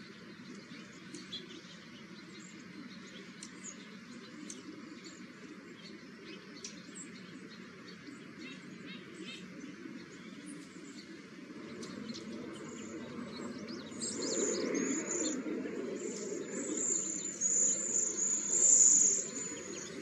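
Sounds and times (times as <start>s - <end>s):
birds high thin whistles: 13.4s - 20.0s.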